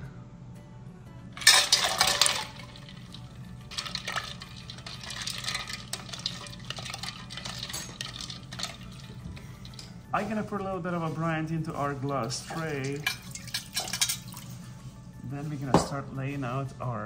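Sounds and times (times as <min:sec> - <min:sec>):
ice cubes splashing into liquid: 0:01.4 - 0:09.9, 0:11.8 - 0:14.6
ice cubes clinking and sloshing: 0:01.4 - 0:14.7.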